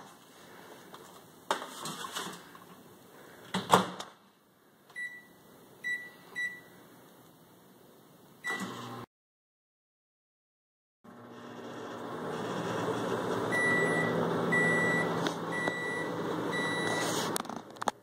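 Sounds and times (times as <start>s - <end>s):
microwave running: 8.4s - 9.1s, 11.1s - 17.8s
keypad beeps: 13.6s - 17.1s.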